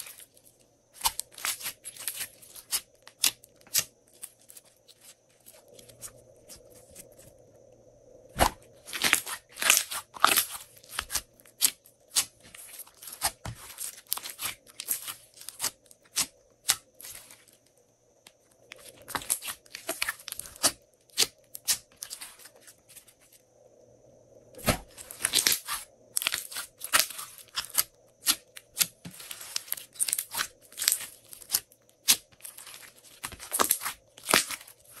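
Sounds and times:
slime crackling and popping: 0:24.6 - 0:35.0.

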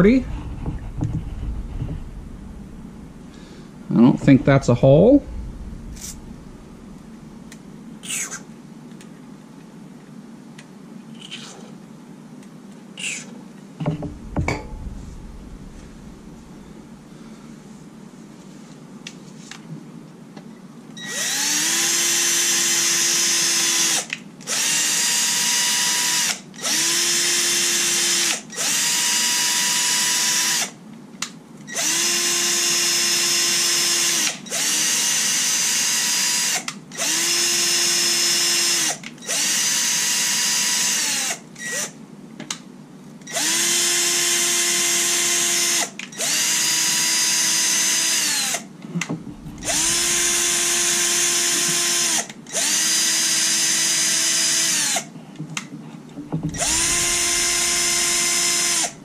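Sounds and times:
cordless drill motor whine: 0:21.0 - 0:30.6, 0:31.8 - 0:41.9, 0:49.6 - 0:55.0, 0:56.5 - 0:59.0.

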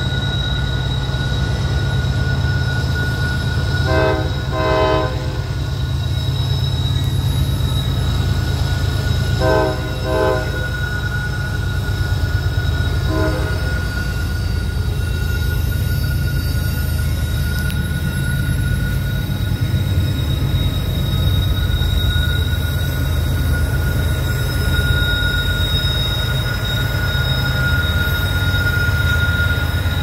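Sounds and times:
diesel locomotives rumbling: 0:00.0 - 0:30.0
high-pitched wheel squeal: 0:00.0 - 0:30.0
locomotive air horn blasts: 0:03.8 - 0:05.6, 0:09.4 - 0:10.8, 0:13.0 - 0:13.9.

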